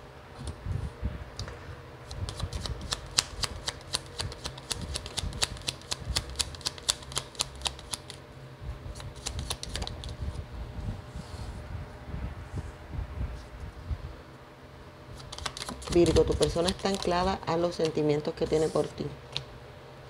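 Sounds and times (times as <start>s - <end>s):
cards being shuffled: 2.1s - 8.2s, 8.9s - 10.3s, 15.2s - 18.0s.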